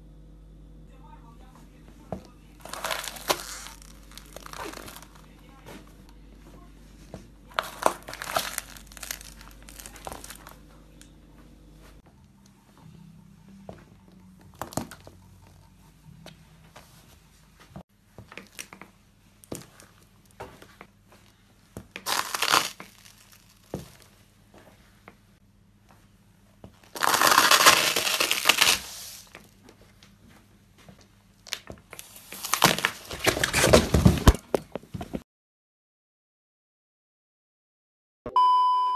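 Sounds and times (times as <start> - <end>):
cardboard pack crushed underfoot: 2.6 - 5.9, 7.5 - 10.7, 22.0 - 24.1, 26.9 - 29.4, 31.5 - 34.6.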